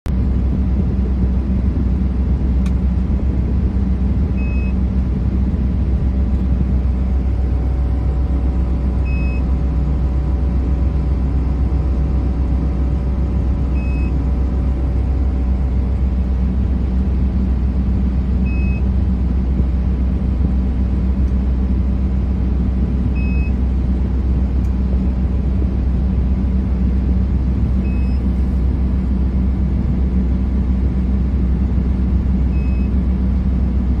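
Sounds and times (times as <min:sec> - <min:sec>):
heavy engine running: 0:00.0 - 0:34.0
short high beep: 0:04.4 - 0:04.8, 0:09.0 - 0:09.5, 0:13.8 - 0:14.2, 0:27.8 - 0:28.3, 0:32.5 - 0:32.9.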